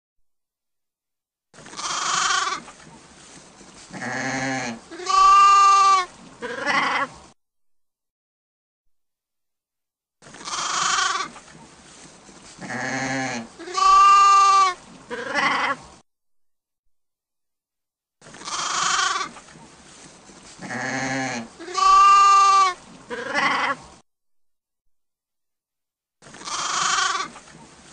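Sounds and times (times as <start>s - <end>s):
sheep bleating: 1.6s - 2.6s, 3.9s - 7.2s, 10.4s - 11.4s, 12.6s - 15.8s, 18.4s - 19.4s, 20.6s - 23.8s, 26.3s - 27.4s.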